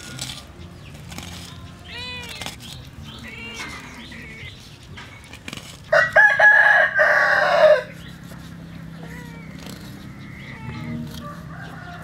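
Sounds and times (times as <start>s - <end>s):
rooster crowing: 5.9s - 7.9s, 11.2s - 12.0s.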